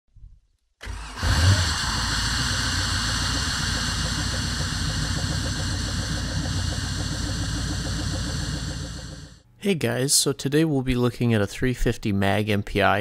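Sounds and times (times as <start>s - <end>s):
boat engine idling: 0.9s - 9.4s.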